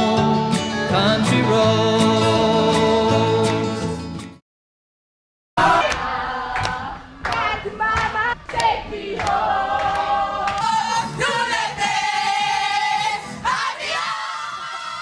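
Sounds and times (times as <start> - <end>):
women singing a chant: 5.6 - 15.0.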